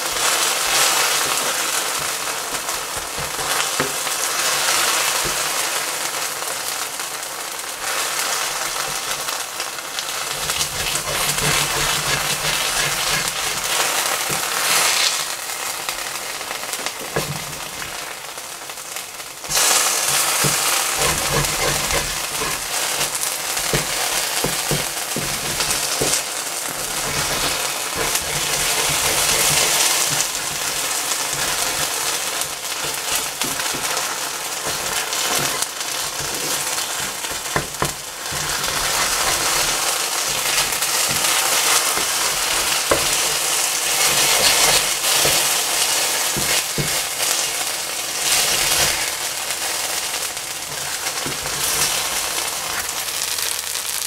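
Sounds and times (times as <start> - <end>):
food sizzling in pan: 0.0 - 54.0
oil popping: 19.5 - 47.4.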